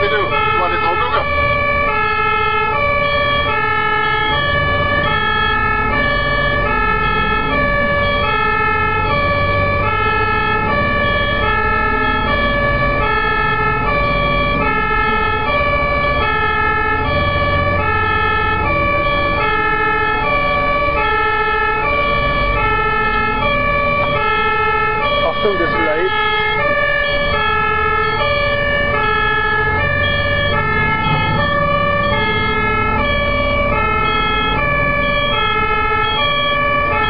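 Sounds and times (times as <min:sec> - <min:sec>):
truck engine and road rumble: 0:00.0 - 0:37.0
two-tone fire truck siren: 0:00.0 - 0:37.0.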